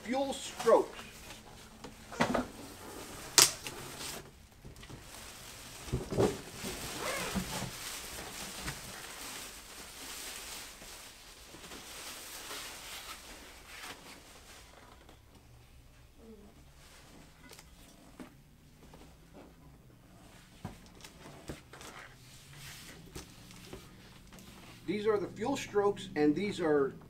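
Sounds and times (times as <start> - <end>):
plastic wrapping crinkling: 3.2 - 15.0.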